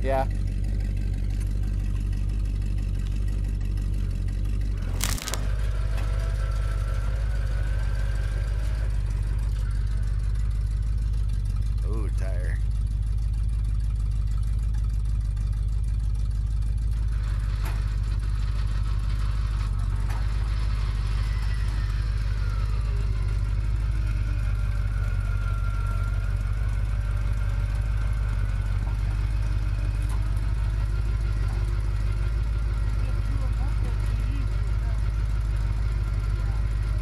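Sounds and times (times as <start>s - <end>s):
vehicle engine idling: 0.0s - 37.0s.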